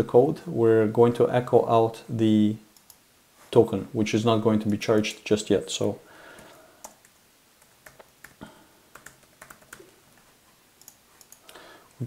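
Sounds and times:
typing on computer keyboard: 6.8s - 10.0s.

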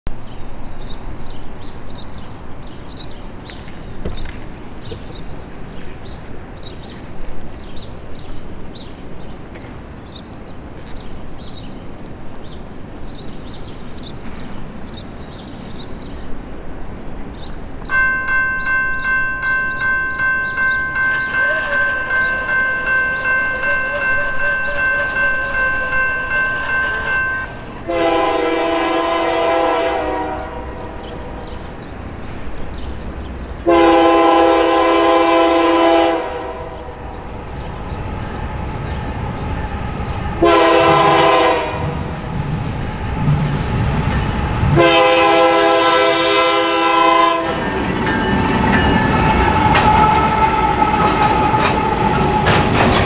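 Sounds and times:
bird chirps: 0.3s - 27.8s
railroad crossing bell ringing: 17.9s - 29.4s, 44.2s - 52.5s
distant locomotive horn: 20.4s - 31.6s, 33.6s - 37.1s, 40.4s - 42.1s, 44.7s - 47.9s.

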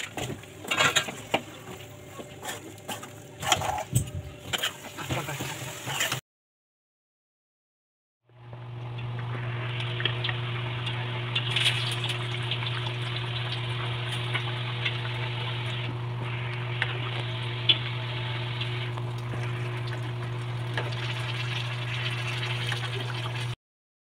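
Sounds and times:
low hum: 8.3s - 23.6s.

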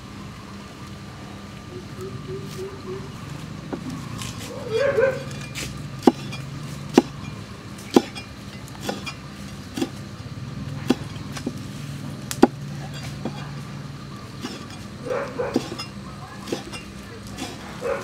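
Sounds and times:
cleaver chopping on wooden block: 6.0s - 7.3s, 7.9s - 8.2s, 10.8s - 11.6s, 12.4s - 12.6s, 16.5s - 17.6s.

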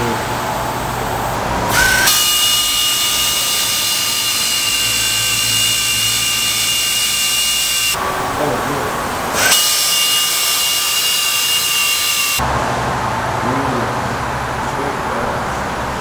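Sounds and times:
pneumatic air tool whining: 1.7s - 8.0s, 9.4s - 12.4s.

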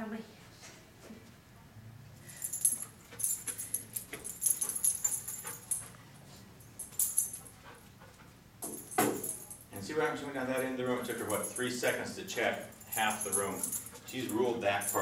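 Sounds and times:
dog collar tags jingling: 2.3s - 6.0s, 6.7s - 7.5s, 8.6s - 9.8s, 10.5s - 15.0s.

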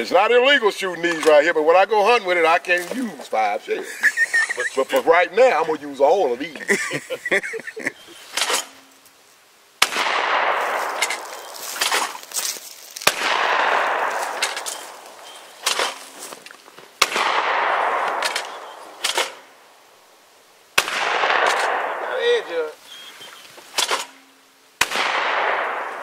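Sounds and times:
shotgun shots with echo: 9.8s - 12.2s, 13.0s - 16.1s, 17.0s - 19.5s, 20.8s - 22.5s, 24.8s - 26.0s.

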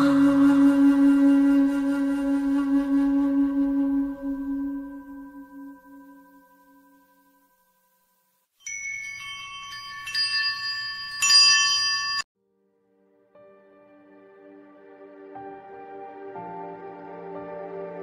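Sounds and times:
soft sustained music: 0.0s - 8.5s, 12.4s - 18.0s
bright metallic chimes: 6.4s - 12.3s.

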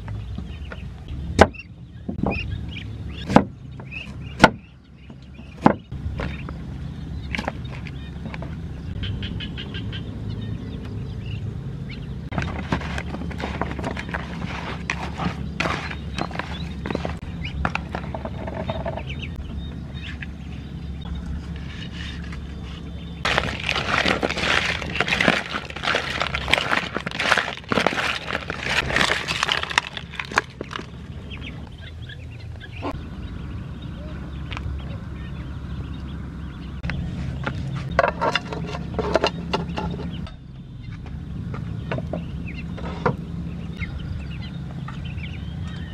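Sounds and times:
ducklings peeping: 0.2s - 38.0s, 39.5s - 45.9s
food handling in plastic bowl: 23.3s - 31.0s
hands squishing fish in marinade: 23.3s - 31.0s
crab shells crackling: 23.3s - 31.1s.

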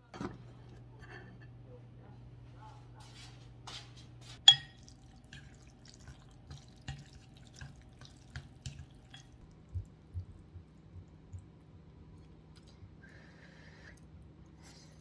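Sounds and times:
chopsticks mixing noodles: 4.2s - 10.8s.

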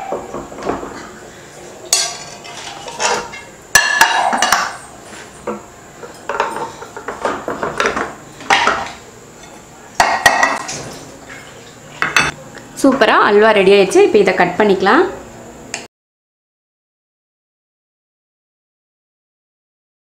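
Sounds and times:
glass dish knocking against plate: 3.8s - 4.8s, 6.3s - 10.8s.

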